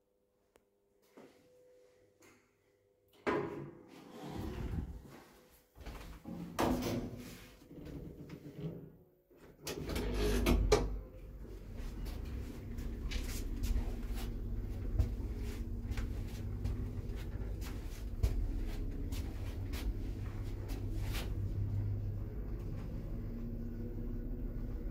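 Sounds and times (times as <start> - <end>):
lift motor rumble and hum: 4.4 - 5.2, 9.6 - 24.9.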